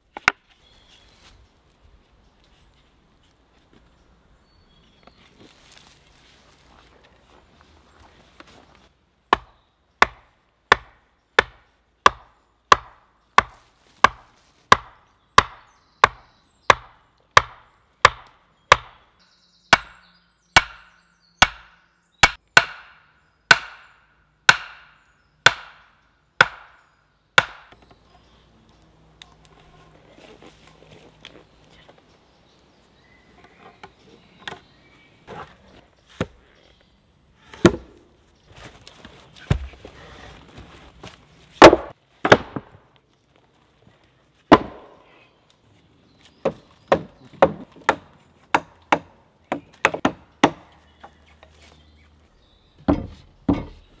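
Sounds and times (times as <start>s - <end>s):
axe striking wooden post: 9.3s - 19.0s, 19.7s - 20.0s, 20.6s - 26.8s, 27.4s - 27.8s, 37.5s - 38.0s, 41.6s - 42.8s, 44.5s - 45.0s, 46.4s - 50.7s, 52.8s - 53.9s
rustling: 29.3s - 32.2s
heavy thump of log set down: 39.4s - 39.9s
wooden knocks: 52.8s - 53.8s.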